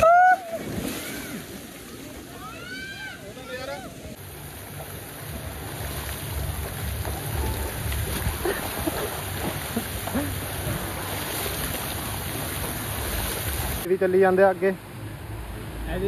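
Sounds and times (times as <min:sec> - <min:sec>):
water jets spraying and splashing: 0:00.6 - 0:16.0
wind rumbling on microphone: 0:04.7 - 0:13.9.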